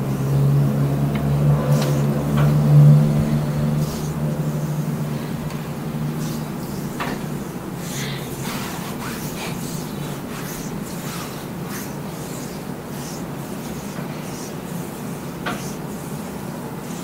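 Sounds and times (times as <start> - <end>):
low engine-like hum: 0.0 - 11.6
hands rubbing skin: 1.7 - 17.0.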